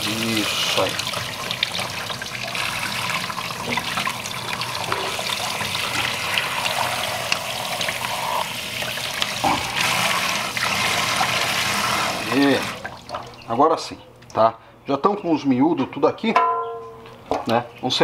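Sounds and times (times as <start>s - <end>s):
tap water running and splashing: 0.0s - 13.5s.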